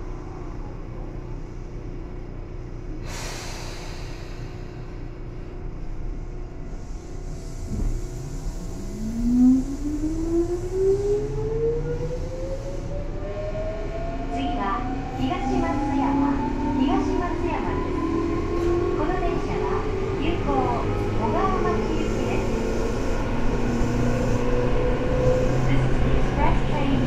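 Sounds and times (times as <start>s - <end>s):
train interior rumble: 0.0s - 27.0s
hiss of air: 3.0s - 4.9s.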